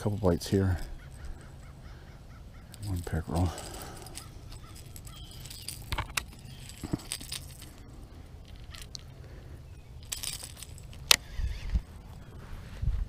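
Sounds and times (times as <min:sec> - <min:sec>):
metal hooks clicking and jingling: 0:02.6 - 0:11.8.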